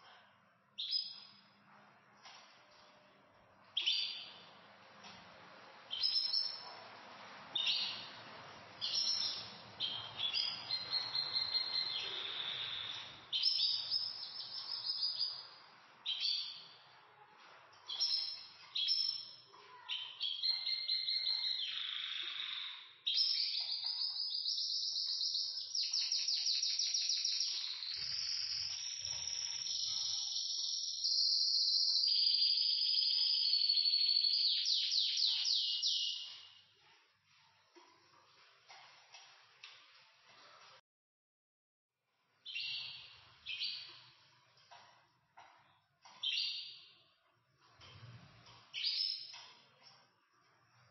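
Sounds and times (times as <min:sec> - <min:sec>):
canaries singing: 0:03.7 - 0:36.9, 0:42.4 - 0:49.8.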